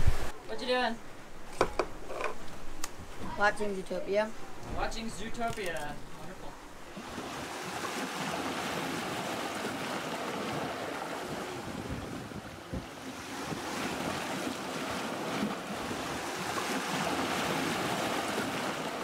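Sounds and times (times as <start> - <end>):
water rushing past a hull: 6.7 - 19.0
wind buffeting microphone: 8.4 - 18.6.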